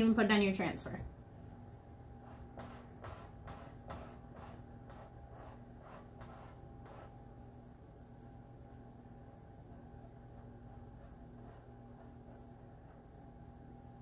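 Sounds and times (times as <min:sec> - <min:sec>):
squeegee scraping back and forth: 0:02.2 - 0:07.2, 0:09.7 - 0:13.2.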